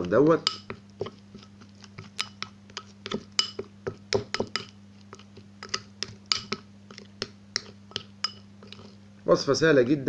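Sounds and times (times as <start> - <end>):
spoon clinking against glass bowl: 0.4 - 1.2, 2.1 - 4.8, 5.6 - 6.6, 7.2 - 8.9.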